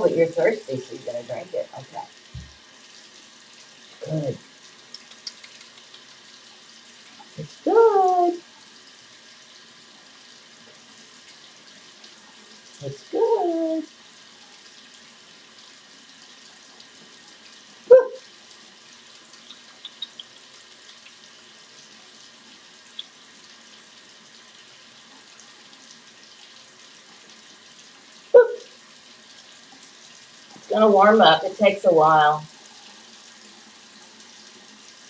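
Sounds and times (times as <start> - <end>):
tap water splashing on hand: 2.3 - 2.6.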